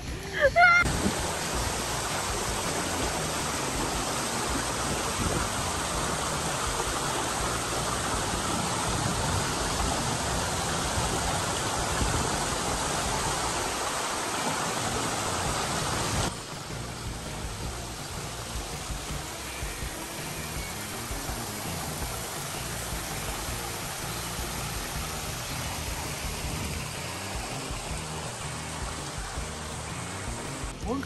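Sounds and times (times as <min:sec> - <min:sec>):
water rushing over rocks: 0:00.0 - 0:31.0.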